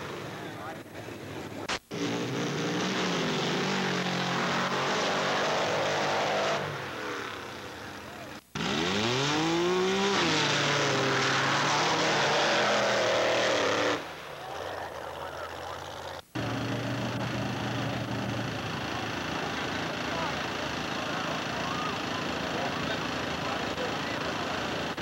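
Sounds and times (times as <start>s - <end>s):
vehicle engine under load: 0.0s - 25.0s
engine revving sharply: 1.6s - 7.5s, 8.6s - 14.1s.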